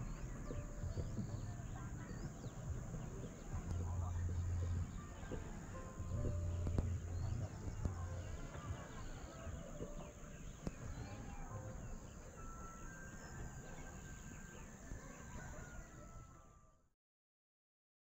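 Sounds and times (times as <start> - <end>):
low rumble: 0.0 - 12.1
birds chirping and calling: 0.0 - 16.2.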